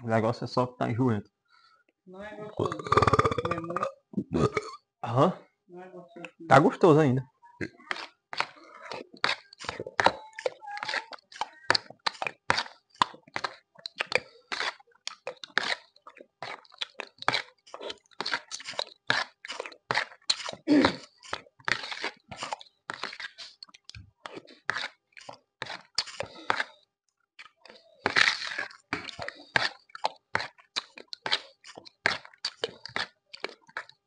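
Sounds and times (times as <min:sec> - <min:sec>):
wet chewing and slurping: 0:02.5 - 0:04.8, 0:07.6 - 0:34.0
spoon scooping gelatin: 0:07.6 - 0:26.8, 0:27.4 - 0:34.0.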